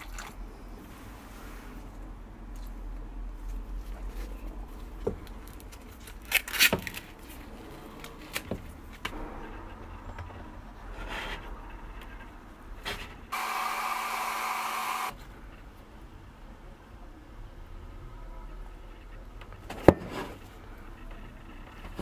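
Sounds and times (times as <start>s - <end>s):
hair dryer blowing: 13.3s - 15.2s.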